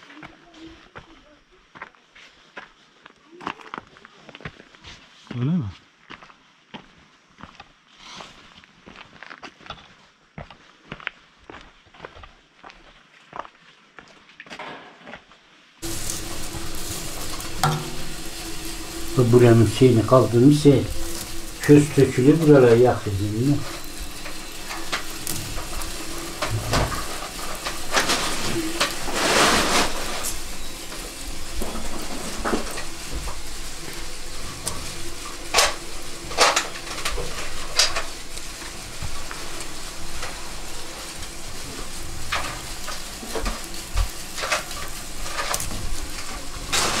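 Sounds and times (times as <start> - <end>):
wood fire crackling and hissing: 0.0 - 9.4, 15.7 - 47.0.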